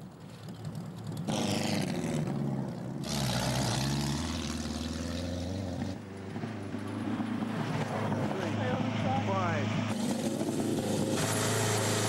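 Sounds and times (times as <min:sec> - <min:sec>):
racing car engine running hard: 0:06.3 - 0:12.0.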